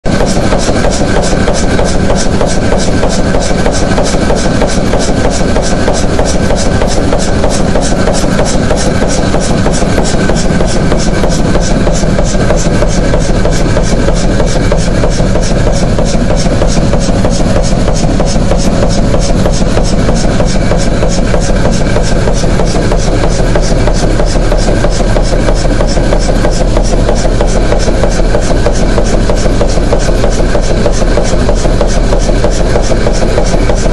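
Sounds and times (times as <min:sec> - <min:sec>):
marine engine knocking: 0:00.0 - 0:33.9.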